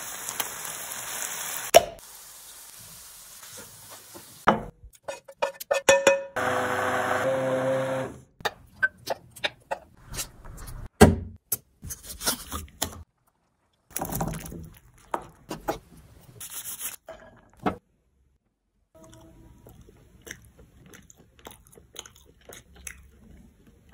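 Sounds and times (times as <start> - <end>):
hand blender running: 6.4 - 8.3.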